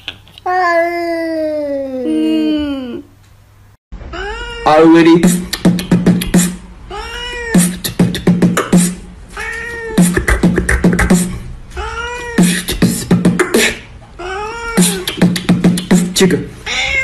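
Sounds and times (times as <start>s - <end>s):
cat meowing: 4.1s - 5.0s, 6.9s - 7.7s, 9.4s - 10.0s, 11.8s - 12.5s, 14.2s - 15.1s, 16.6s - 17.0s
beatbox clicks and thumps: 5.2s - 6.6s, 7.6s - 9.0s, 10.0s - 11.4s, 12.4s - 13.8s, 14.8s - 16.4s.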